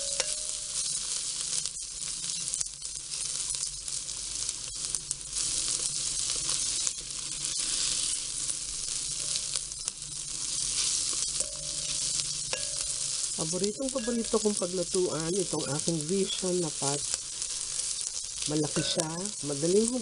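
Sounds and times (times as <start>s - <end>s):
vegetables sizzling in oil: 0.0s - 20.0s
spatula ticking against glass pot: 11.2s - 16.1s, 18.7s - 19.2s.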